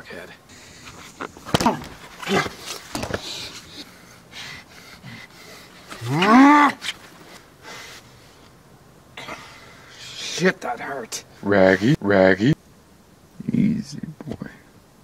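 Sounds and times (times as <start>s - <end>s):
loud drawn-out low cry: 1.5s - 6.8s.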